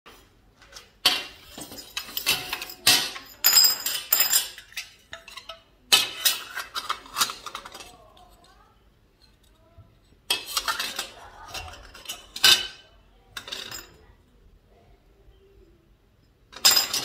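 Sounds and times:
metal tubes clinking on workbench: 0:01.0 - 0:07.4, 0:16.6 - 0:17.0.

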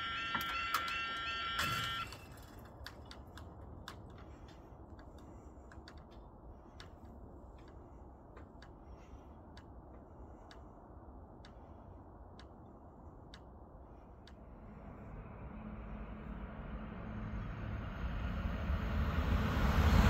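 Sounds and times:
level crossing alarms: 0:00.0 - 0:03.4
faint irregular clicks: 0:00.4 - 0:14.5
low rumble: 0:13.8 - 0:20.0.

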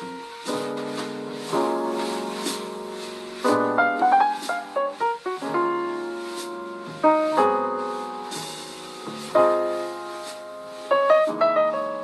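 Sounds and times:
instrumental music chords: 0:00.0 - 0:12.0.

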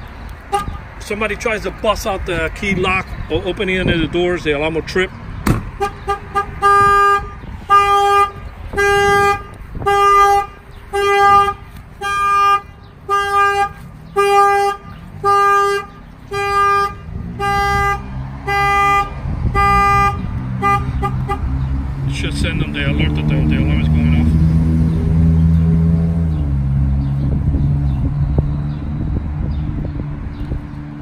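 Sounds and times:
truck horn honking in pulses: 0:00.5 - 0:00.8, 0:05.7 - 0:21.6.

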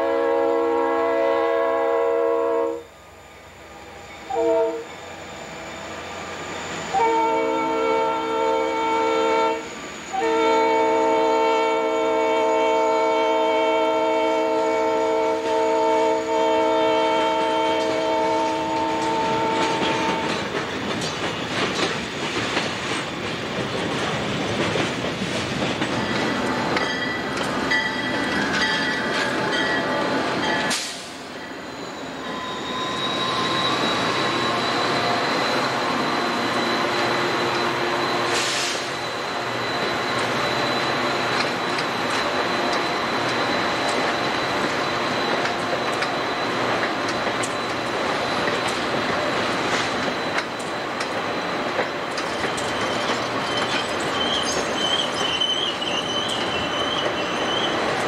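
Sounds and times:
locomotive horn blast: 0:00.0 - 0:02.9, 0:04.3 - 0:04.9, 0:06.9 - 0:20.4
passenger train high whine: 0:00.0 - 0:58.0.

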